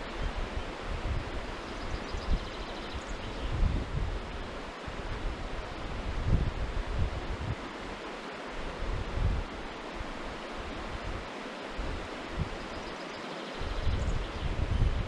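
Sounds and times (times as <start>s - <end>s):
wind buffeting microphone: 0.0s - 8.0s, 8.6s - 12.9s, 13.6s - 15.0s
river water rushing over stones: 4.1s - 13.6s.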